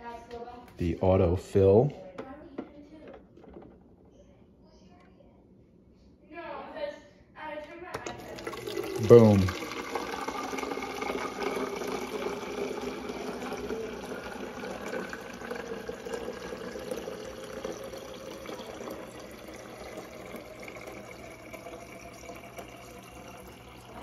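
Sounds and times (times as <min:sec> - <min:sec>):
water running into plastic bottle: 0:08.0 - 0:24.0.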